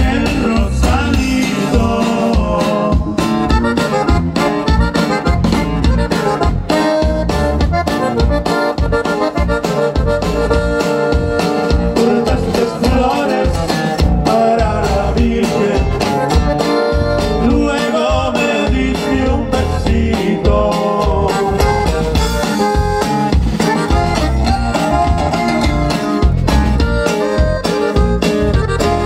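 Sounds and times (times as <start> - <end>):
man singing: 0.0 - 3.5, 11.8 - 16.4, 17.4 - 22.5
button accordion melody: 0.0 - 29.0
drum kit beat: 0.0 - 29.0
electric bass: 0.0 - 29.0.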